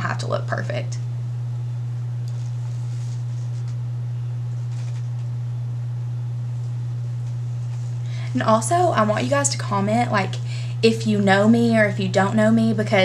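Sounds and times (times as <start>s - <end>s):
steady low hum: 0.0s - 13.0s
soft rustles of hair: 2.3s - 3.8s, 6.5s - 8.4s.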